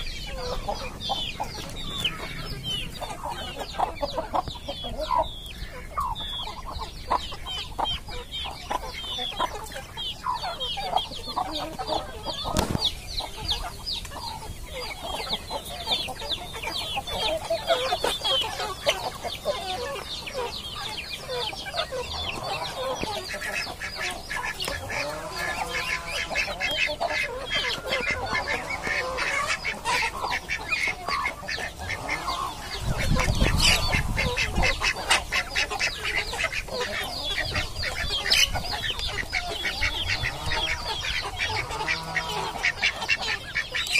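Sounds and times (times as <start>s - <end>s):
chickens clucking: 0.0s - 43.9s.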